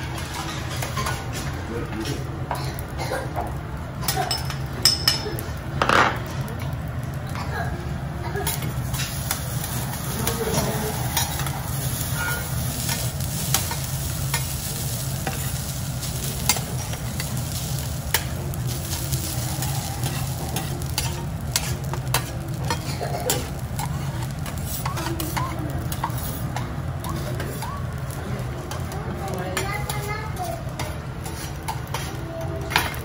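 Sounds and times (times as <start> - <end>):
rice sizzling: 0.0 - 33.0
metal spatulas clacking on griddle: 16.2 - 19.1, 20.0 - 27.7, 30.8 - 33.0.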